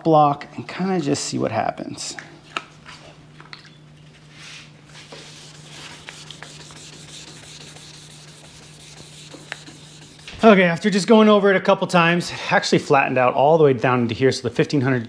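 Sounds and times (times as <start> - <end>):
steady low hum: 0.3 - 13.1
sandpaper rubbing on metal: 5.1 - 10.6.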